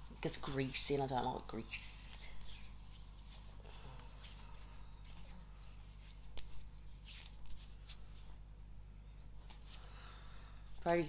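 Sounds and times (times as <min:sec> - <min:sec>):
hands rubbing skin: 0:02.0 - 0:08.4.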